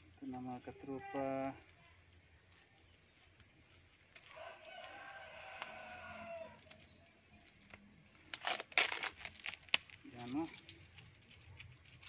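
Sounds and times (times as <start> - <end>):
faint rooster crowing: 4.2 - 6.9.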